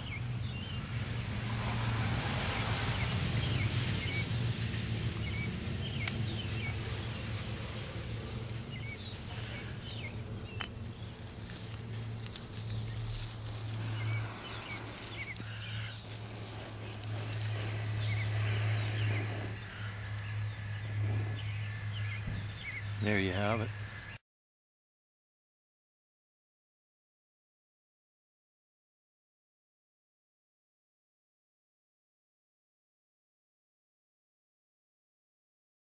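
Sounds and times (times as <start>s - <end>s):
low hum: 0.0s - 23.1s
rushing hiss: 1.2s - 21.8s
bird chirps: 8.1s - 11.2s, 11.9s - 24.2s.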